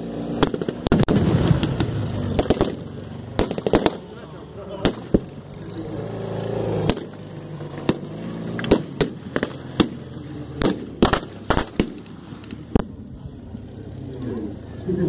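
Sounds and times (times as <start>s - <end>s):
motorcycle engine running: 0.0s - 15.0s
blank gunshots: 0.4s - 5.4s, 6.8s - 7.2s, 7.8s - 12.9s.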